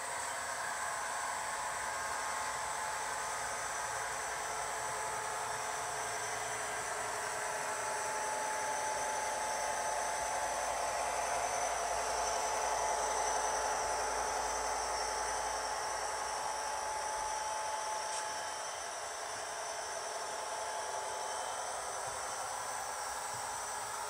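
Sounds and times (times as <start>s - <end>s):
thin motor whine: 0.0s - 24.0s.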